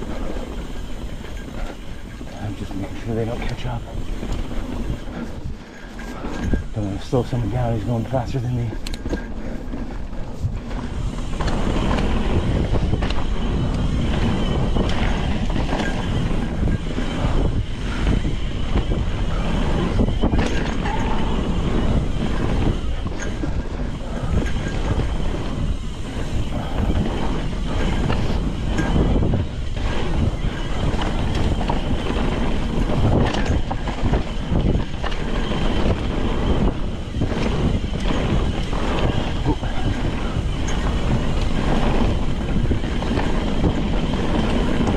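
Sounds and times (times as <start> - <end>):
bike tyre noise on dirt: 0.0 - 44.9
wind on microphone: 0.0 - 44.9
bike knocks and rattles: 9.0 - 44.9.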